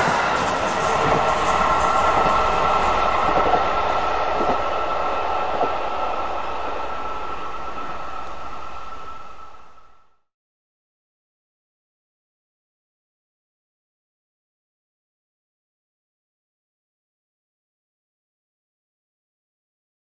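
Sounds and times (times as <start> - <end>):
train rail rumble with whine: 0.0 - 10.2.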